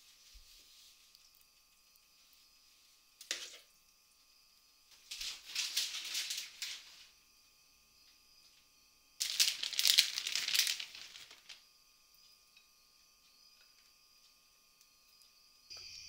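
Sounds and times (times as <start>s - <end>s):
cheese rustling and crinkling: 5.0s - 7.2s, 9.2s - 11.6s.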